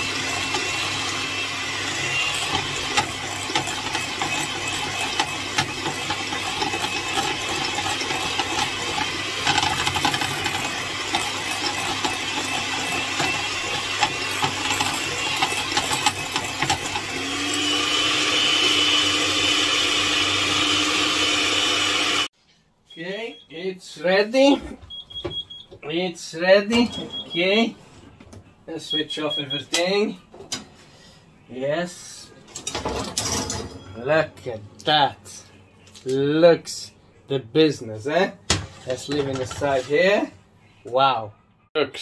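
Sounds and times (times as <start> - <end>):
electric mixer whining: 0.0 - 22.3.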